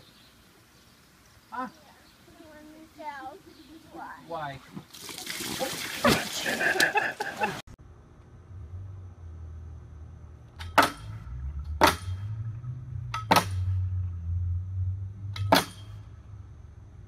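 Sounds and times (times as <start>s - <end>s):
low steady rumble: 7.7s - 17.0s
metal bar clanking in posts: 10.5s - 13.9s, 15.3s - 16.1s.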